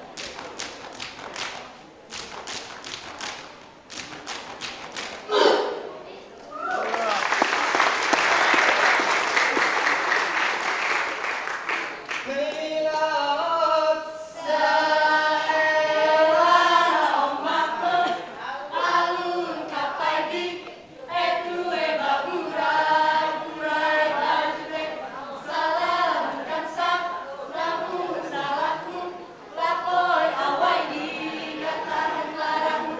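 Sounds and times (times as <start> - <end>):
applause: 6.4 - 13.1
group singing unaccompanied: 12.3 - 32.9.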